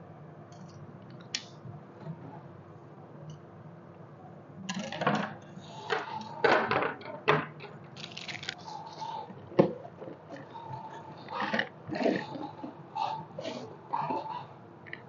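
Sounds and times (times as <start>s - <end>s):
plastic wrapping rustling: 8.0s - 8.7s.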